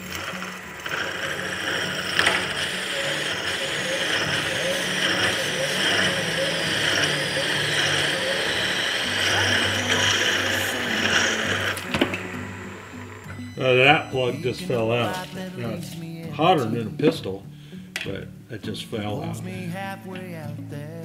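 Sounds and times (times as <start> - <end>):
metal-cutting whine and ringing: 0.0 - 15.9
machine hum: 0.0 - 18.1.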